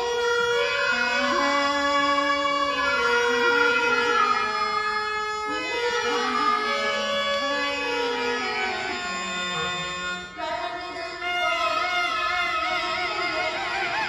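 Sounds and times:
steady drone: 8.8s - 10.5s.

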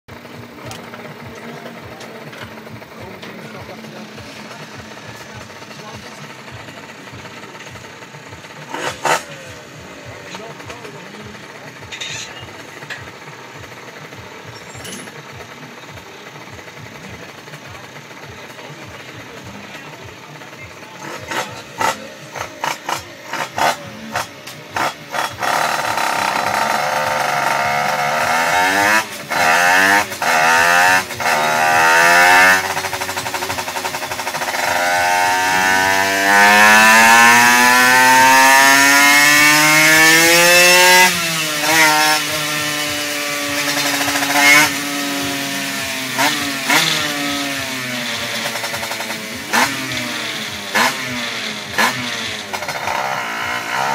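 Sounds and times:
moped engine revving: 0.1s - 53.9s
man talking: 0.4s - 7.5s, 9.2s - 12.8s.

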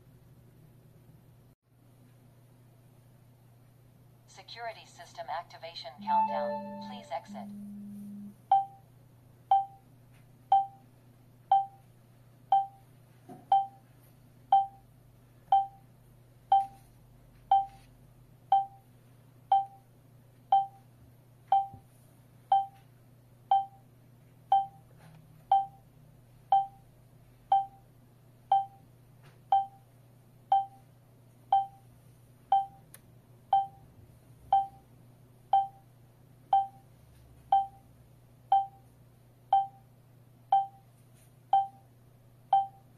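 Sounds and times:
alarm system short beeps: 6.0s - 8.7s.

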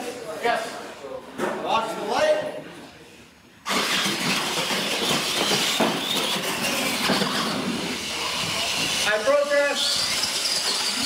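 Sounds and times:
toy trucks electric motors whining: 3.6s - 11.0s.

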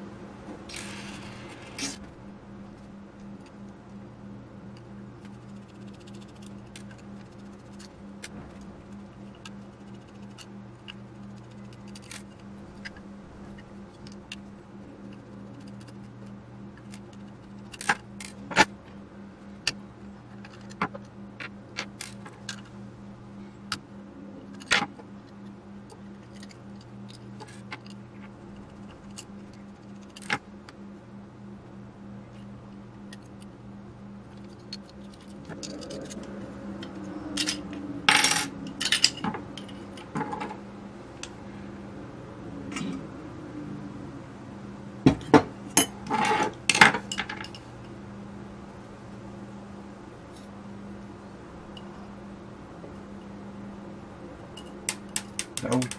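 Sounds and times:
small metal parts clicking: 9.3s - 13.0s, 34.3s - 40.4s, 54.6s - 55.9s.

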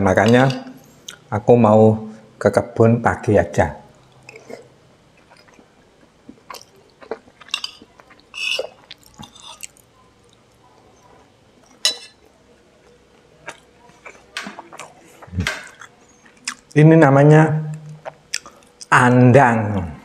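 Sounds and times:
person chewing food: 3.9s - 16.8s, 17.7s - 18.9s.

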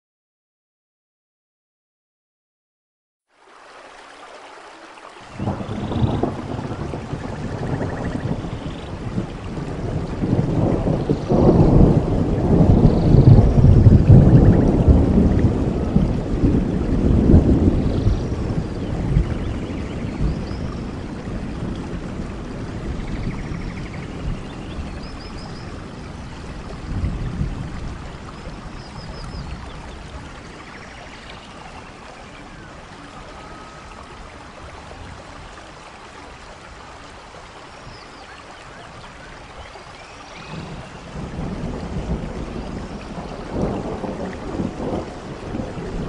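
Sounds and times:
rain and falling water: 3.3s - 46.0s
thunder rolling: 5.4s - 35.1s, 40.4s - 46.0s
birds chirping and trilling: 22.8s - 26.9s.

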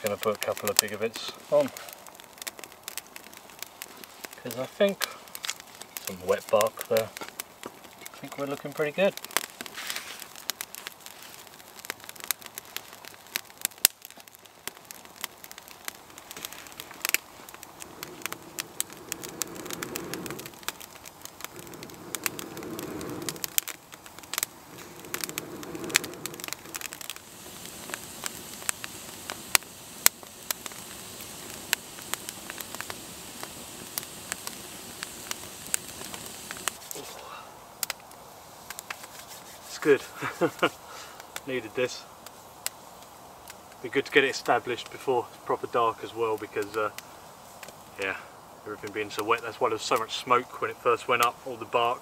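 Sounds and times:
campfire crackling and popping: 0.0s - 52.0s
breath blown into fire: 16.2s - 37.6s.

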